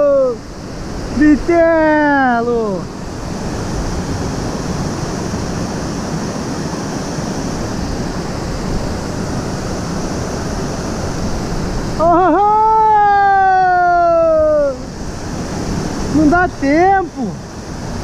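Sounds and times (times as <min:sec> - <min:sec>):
long pitched cry: 0:00.0 - 0:00.4, 0:12.0 - 0:14.9
small waterfall rushing: 0:00.0 - 0:18.0.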